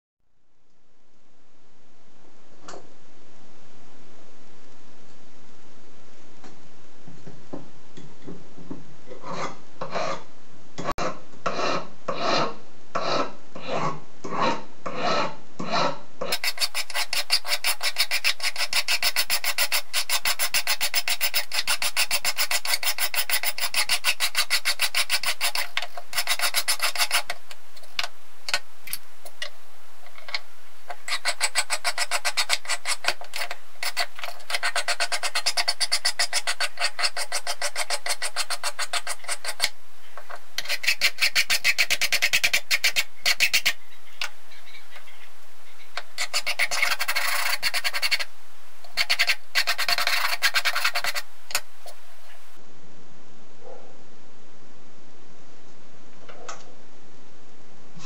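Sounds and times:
file rasping on brass: 0:11.0 - 0:27.4, 0:30.9 - 0:39.7, 0:40.6 - 0:43.8, 0:46.2 - 0:48.3, 0:48.9 - 0:51.3.

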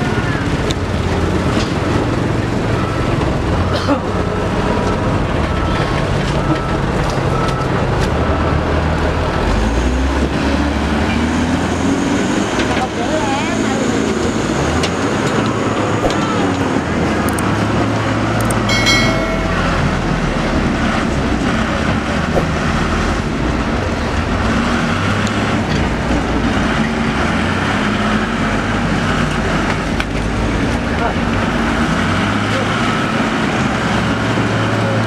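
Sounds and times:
diesel engines under load: 0:00.0 - 0:35.0
high-pitched tone: 0:18.7 - 0:20.2.

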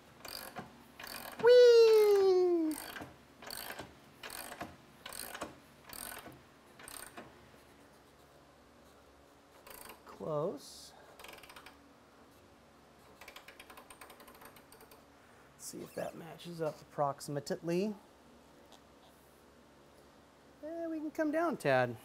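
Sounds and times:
ratchet clicks: 0:00.2 - 0:01.4, 0:02.7 - 0:07.3, 0:09.6 - 0:10.0, 0:11.2 - 0:11.8, 0:13.1 - 0:15.0.

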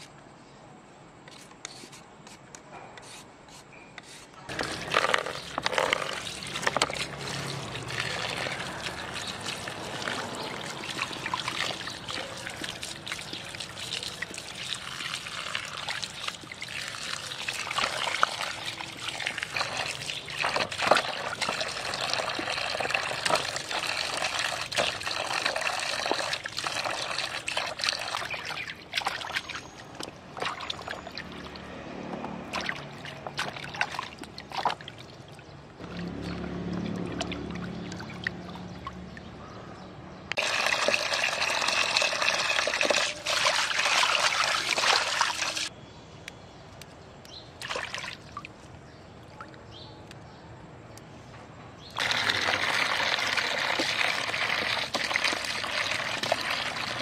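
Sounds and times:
hands splashing in water: 0:04.5 - 0:31.6, 0:32.2 - 0:39.0, 0:47.6 - 0:48.6
water dripping: 0:04.5 - 0:39.4, 0:40.3 - 0:50.2.

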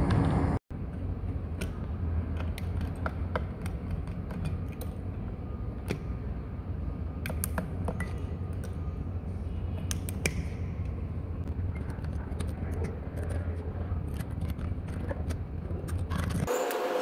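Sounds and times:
steady low hum: 0:00.0 - 0:16.5.

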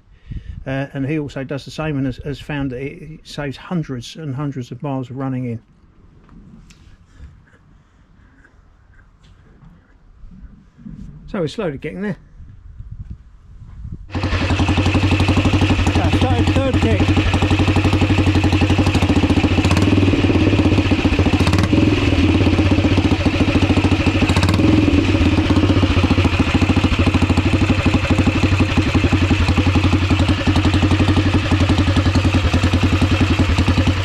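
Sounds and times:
motorcycle engine idling: 0:14.1 - 0:34.0.

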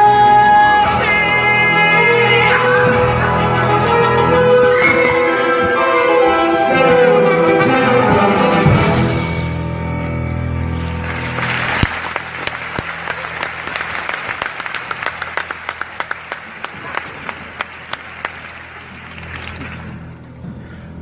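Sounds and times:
audience applauding: 0:10.7 - 0:20.2.

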